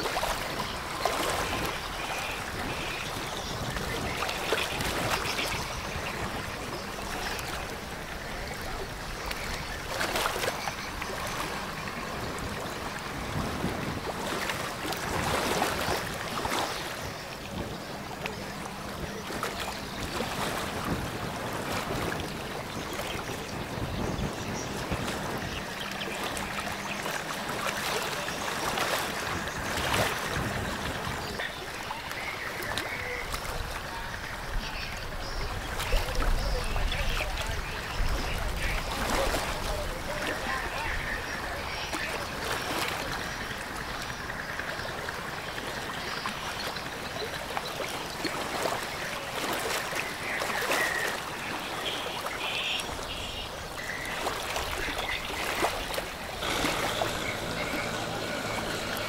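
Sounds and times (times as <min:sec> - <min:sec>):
wind on microphone: 0:00.0 - 0:26.8, 0:27.6 - 0:31.6, 0:33.0 - 0:45.4
water washing from ship wake: 0:00.0 - 0:59.0
faint low engine hum: 0:54.8 - 0:59.0.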